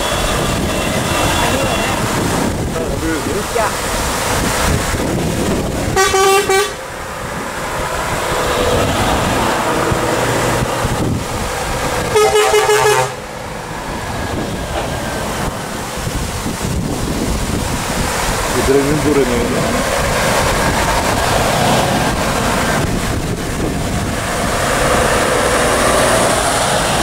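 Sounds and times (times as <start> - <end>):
truck horn blasts: 0.0 - 2.1, 6.0 - 6.8, 12.1 - 13.2
lorries driving past: 0.0 - 27.0.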